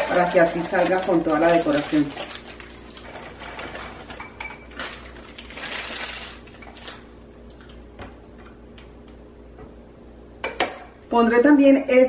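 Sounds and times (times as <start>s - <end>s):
foil candies clinking into glass jar: 0.0s - 7.1s
plastic bag rustling: 0.0s - 7.8s.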